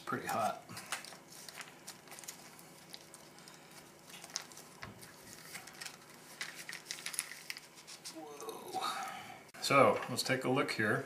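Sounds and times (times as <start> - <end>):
foil pouch crinkling and clicking: 0.1 - 8.2.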